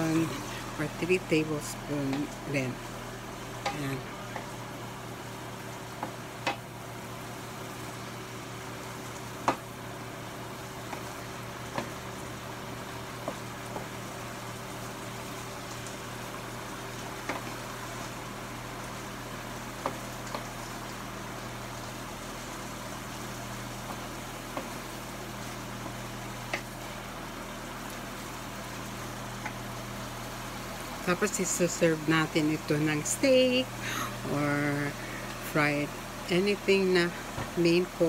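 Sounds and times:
vegetables sizzling in a skillet: 0:00.0 - 0:38.0
wooden spatula knocking on pan: 0:09.4 - 0:09.6.

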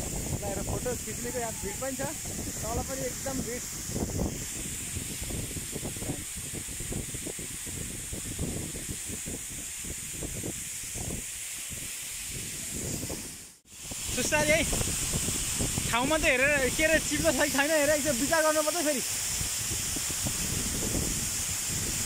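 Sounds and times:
waterfall rushing: 0:00.0 - 0:06.1, 0:13.8 - 0:22.0.

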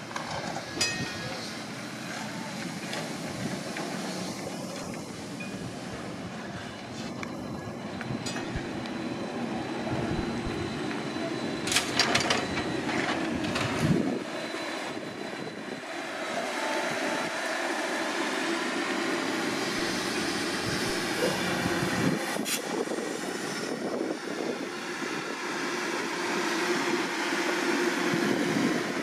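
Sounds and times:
trolleybus driving past: 0:00.0 - 0:29.0
faint rising whine: 0:03.3 - 0:22.2.

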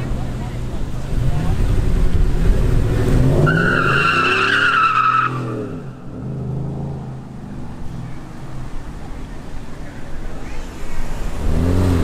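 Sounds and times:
car engine revving: 0:00.0 - 0:08.0, 0:11.1 - 0:12.0
tyres squealing: 0:03.4 - 0:06.0.

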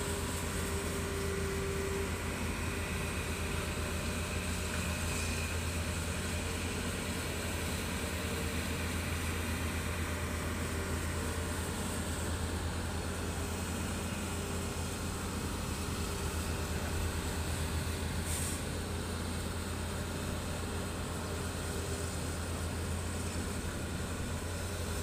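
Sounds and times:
diesel excavator engine running: 0:00.0 - 0:25.0.

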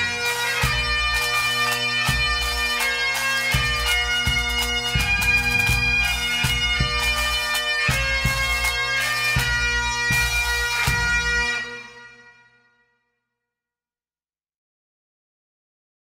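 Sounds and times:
bagpipe melody over drones: 0:00.0 - 0:12.7
drum beat: 0:01.8 - 0:11.4.

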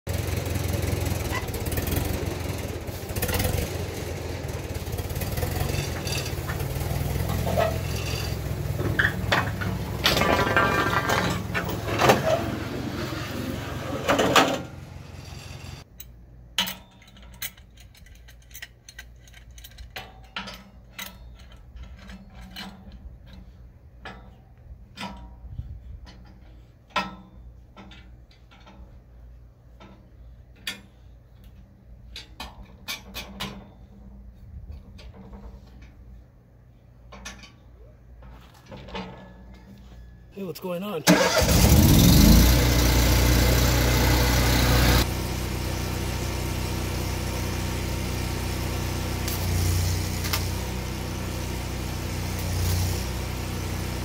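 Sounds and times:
tractor engine running: 0:00.1 - 0:15.9, 0:40.4 - 0:54.0.

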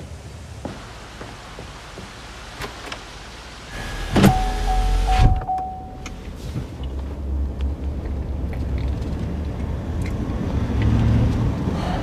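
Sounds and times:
car driving rumble: 0:00.1 - 0:12.0
power window whirring: 0:03.8 - 0:05.6.

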